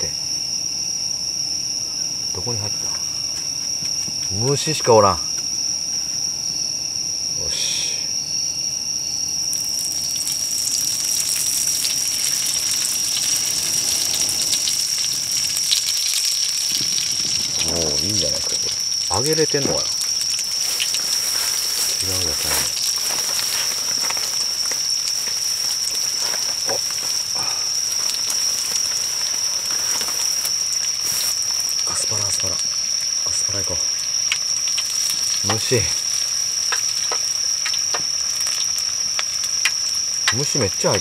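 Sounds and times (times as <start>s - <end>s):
high insect trill: 0.0s - 41.0s
deep-frying sizzle: 9.0s - 41.0s
oil crackling and spitting: 9.5s - 41.0s.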